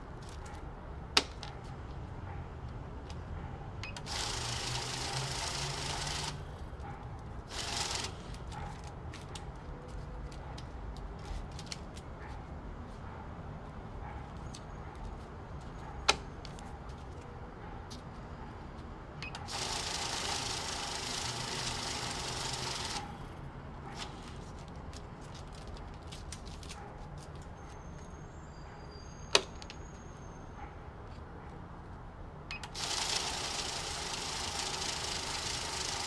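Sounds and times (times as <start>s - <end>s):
banknote counter whirring: 3.9s - 6.5s, 7.5s - 8.3s, 19.3s - 23.2s, 32.6s - 36.0s
paper bills handled: 24.0s - 27.4s.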